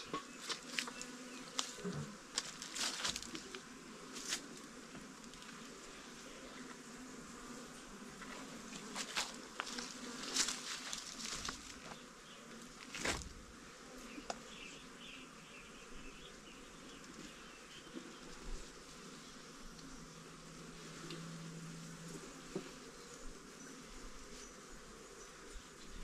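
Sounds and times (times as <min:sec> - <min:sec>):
insects buzzing: 0:00.0 - 0:26.0.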